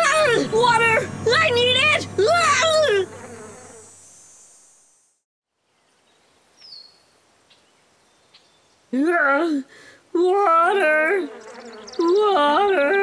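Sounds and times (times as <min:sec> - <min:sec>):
cartoon character shouting: 0:00.0 - 0:03.1
high insect buzz: 0:00.2 - 0:05.2, 0:10.7 - 0:12.6.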